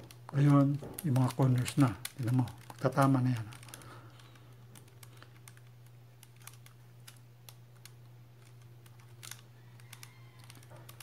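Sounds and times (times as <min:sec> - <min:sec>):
plastic puzzle cube clicks: 0:00.0 - 0:11.0.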